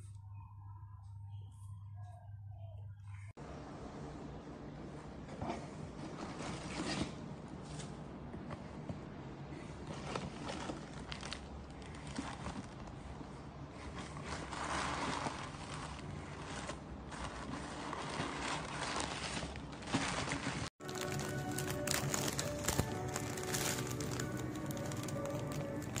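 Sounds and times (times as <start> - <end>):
cardboard and paper rustling: 5.3 - 26.0
plastic bags crinkling: 9.9 - 13.0, 13.9 - 26.0
music: 20.8 - 26.0.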